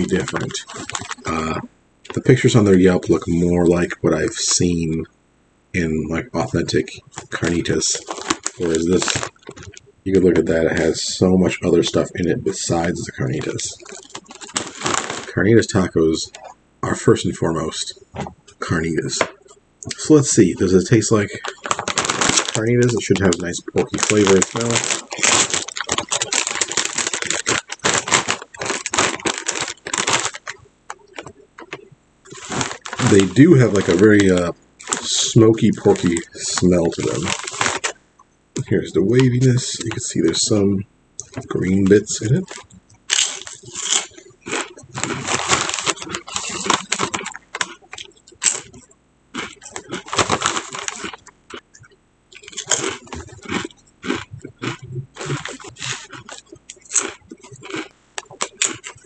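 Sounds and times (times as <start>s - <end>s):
chip bag crinkling: 0.0s - 4.6s, 6.6s - 11.0s, 11.6s - 16.4s, 19.9s - 38.0s, 38.6s - 40.5s, 41.2s - 51.6s, 52.3s - 59.0s.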